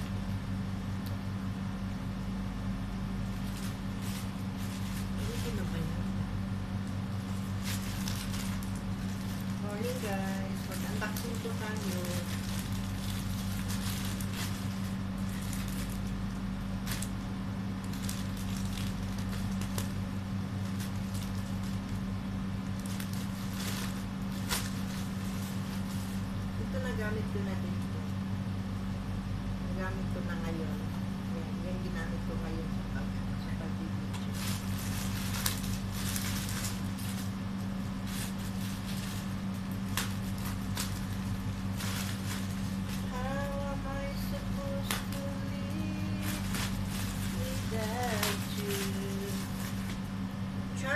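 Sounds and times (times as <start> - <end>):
steady low hum: 0.0 - 50.9
plastic pouch crinkling and tearing: 7.3 - 17.2, 17.8 - 20.0, 22.7 - 26.2, 34.2 - 37.3, 38.0 - 43.1, 45.9 - 50.0.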